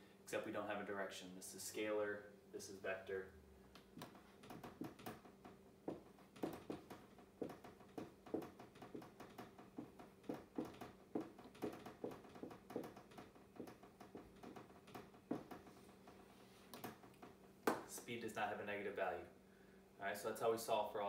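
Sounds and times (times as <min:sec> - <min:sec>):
faint steady hum: 0:00.0 - 0:21.0
marker writing on whiteboard: 0:05.9 - 0:14.6.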